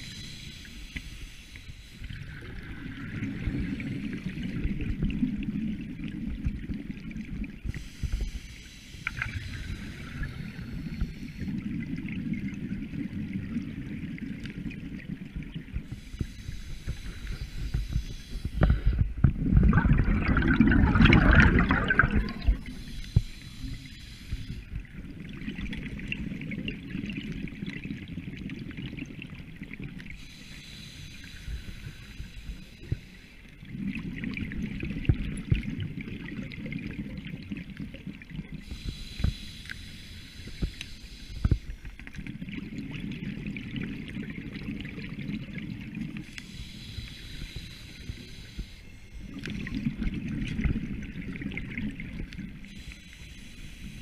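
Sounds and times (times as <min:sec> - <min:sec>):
diver breathing through regulator: 0:00.0 - 0:04.2, 0:15.8 - 0:24.8, 0:30.2 - 0:33.4, 0:38.6 - 0:42.0, 0:46.2 - 0:49.7, 0:52.6 - 0:54.0
exhaled bubbles rushing underwater: 0:02.0 - 0:08.2, 0:09.1 - 0:30.3, 0:31.3 - 0:39.4, 0:41.5 - 0:52.9.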